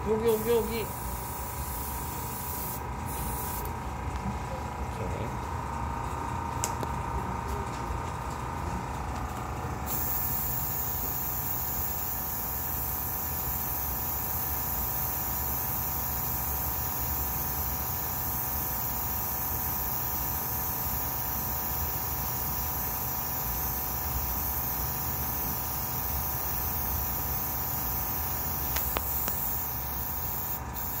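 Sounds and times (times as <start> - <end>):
steady low hum: 0.0 - 31.0
airbrush spraying air hiss: 0.2 - 3.7, 9.9 - 31.0.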